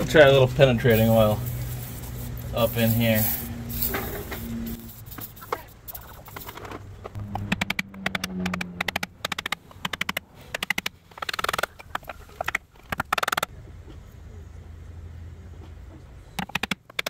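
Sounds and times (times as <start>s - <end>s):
aerosol can rattling: 0.9s - 6.8s.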